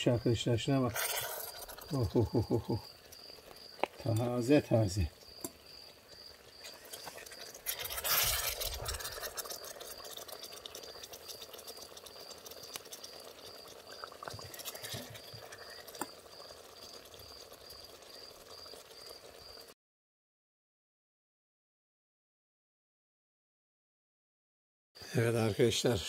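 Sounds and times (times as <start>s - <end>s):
cricket chirping: 0.0s - 19.7s
spoon scraping wet stew: 0.8s - 2.1s, 5.2s - 16.9s.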